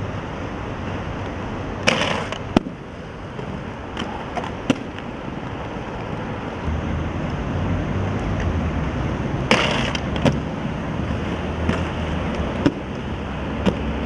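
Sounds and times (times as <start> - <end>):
low traffic hum: 0.0 - 14.0
skateboard clacking: 1.2 - 6.2, 9.4 - 10.5, 11.1 - 14.0
skateboard scraping: 1.8 - 6.6, 9.4 - 14.0.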